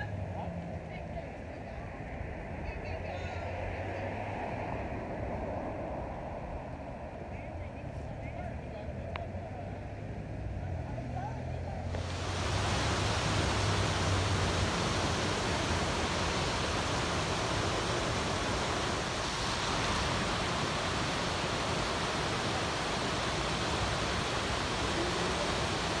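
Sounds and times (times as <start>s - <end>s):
river rushing over rapids: 11.8s - 26.0s.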